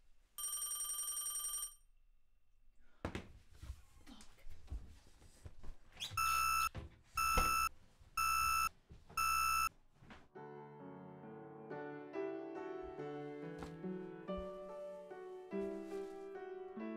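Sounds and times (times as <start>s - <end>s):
shuffling and light knocks: 3.0s - 10.3s, 13.6s - 16.4s
soft piano music: 10.3s - 16.9s.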